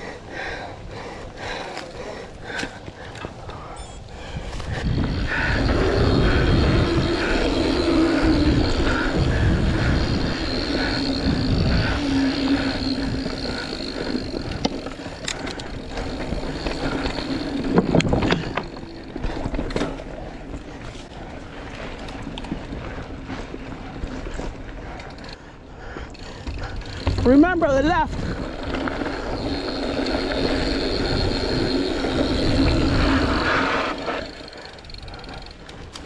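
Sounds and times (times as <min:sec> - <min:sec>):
bike tyre and frame rattle: 0:00.0 - 0:36.0
wind rushing over microphone: 0:04.0 - 0:19.6, 0:27.1 - 0:36.0.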